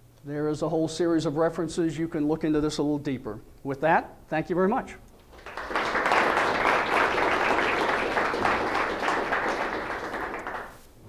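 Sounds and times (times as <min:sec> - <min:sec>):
audience applauding: 0:05.2 - 0:10.8.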